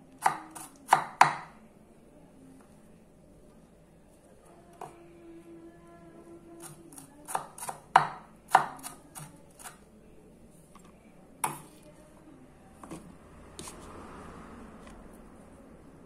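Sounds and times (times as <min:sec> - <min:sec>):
knife chopping on wooden board: 0:00.2 - 0:01.5, 0:07.3 - 0:09.8.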